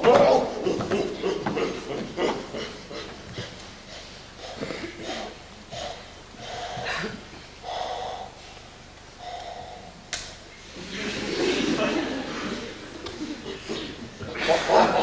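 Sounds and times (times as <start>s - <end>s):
breathy vocal bursts: 2.5s - 10.1s.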